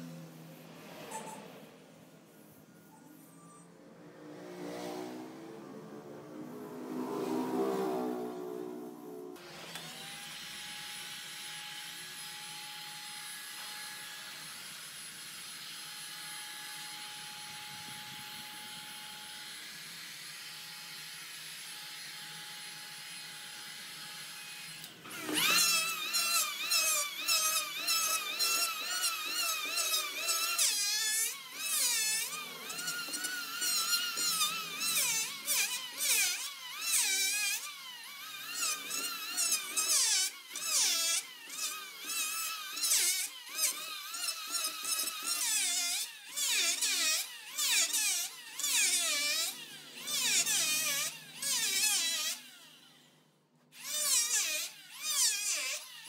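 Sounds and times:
electric hand planer cutting wood: 0:06.0 - 0:53.1, 0:53.8 - 0:56.0
heat gun blowing: 0:24.0 - 0:52.4.

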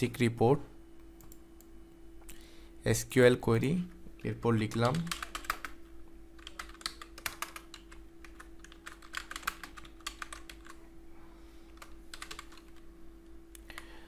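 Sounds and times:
faint steady hum: 0:00.0 - 0:14.0
keyboard typing: 0:04.2 - 0:05.8, 0:06.4 - 0:10.8, 0:11.8 - 0:12.8.

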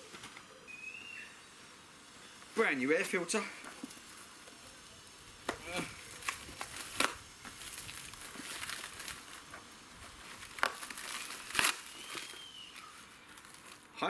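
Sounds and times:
plastic wrapping crinkling and tearing: 0:03.0 - 0:14.0.

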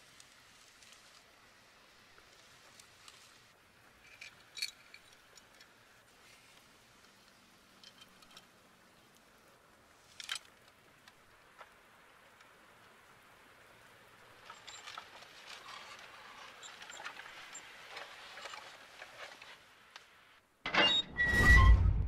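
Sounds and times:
metal trailer scraping through soil: 0:14.4 - 0:19.7.

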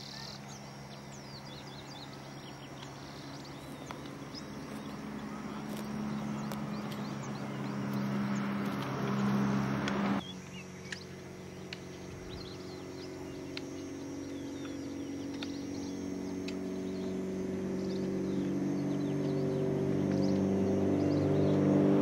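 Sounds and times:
birds chirping: 0:00.0 - 0:22.0
low engine hum: 0:00.0 - 0:22.0
loud rushing noise: 0:05.1 - 0:10.2.

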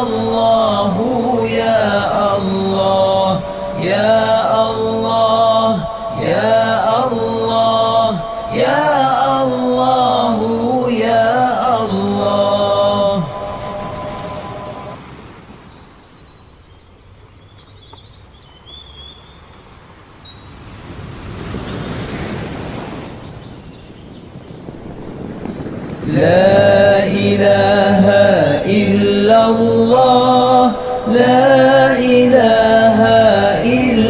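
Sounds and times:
person chanting: 0:00.0 - 0:15.0, 0:26.0 - 0:34.0
soft rushing noise: 0:11.6 - 0:16.3, 0:20.7 - 0:29.9.

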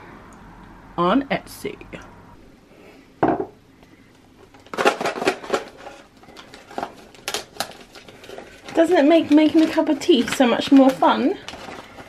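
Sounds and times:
wrapping paper crinkling and tearing: 0:04.5 - 0:12.0.

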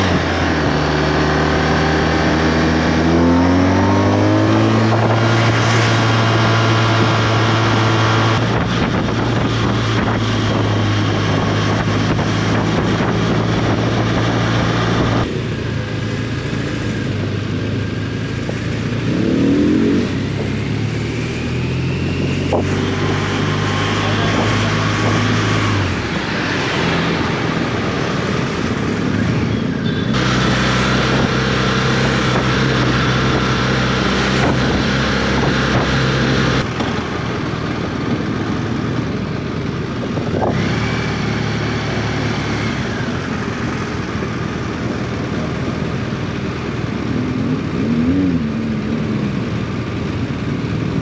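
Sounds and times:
motorcycle engine running: 0:00.0 - 0:51.0
road noise: 0:00.0 - 0:51.0
wind noise: 0:02.0 - 0:15.4, 0:21.9 - 0:39.2, 0:39.8 - 0:41.0.

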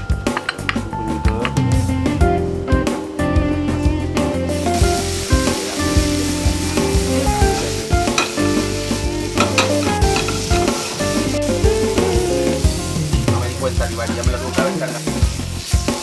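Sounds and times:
food sizzling in a frying pan: 0:04.3 - 0:16.0
clicks of food and pan: 0:09.4 - 0:10.4.

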